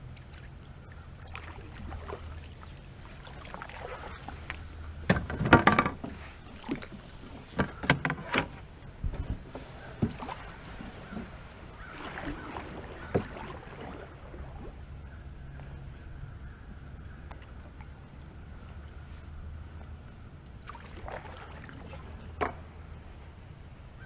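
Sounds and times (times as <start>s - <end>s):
paddle in water: 0.0s - 24.0s
knocks on canoe hull: 5.0s - 6.9s, 7.5s - 10.4s.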